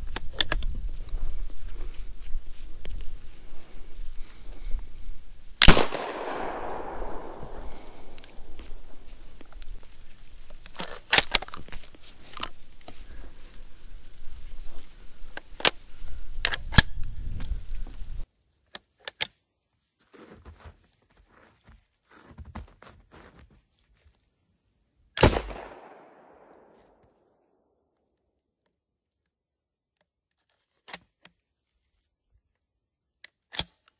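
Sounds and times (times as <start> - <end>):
shotgun shot with ringing tail: 5.6 - 9.1
metallic clicks of shotgun handling: 5.6 - 9.7, 10.6 - 13.0, 16.4 - 17.0.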